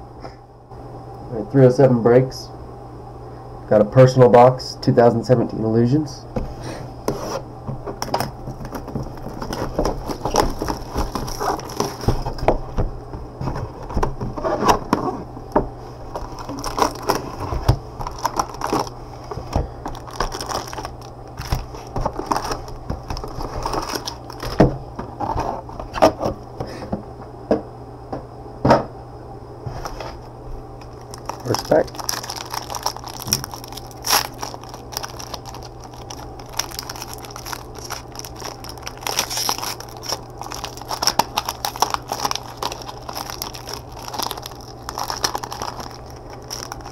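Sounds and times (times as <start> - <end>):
steady low hum: 0.0 - 46.9
wrapper crinkling: 8.0 - 12.8, 16.1 - 24.6, 30.8 - 46.9.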